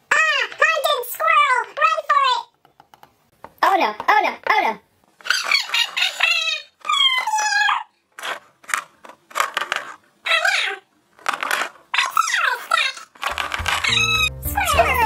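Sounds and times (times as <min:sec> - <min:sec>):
cartoon squirrel chattering: 0:05.2 - 0:07.9, 0:10.2 - 0:10.9, 0:12.0 - 0:15.0.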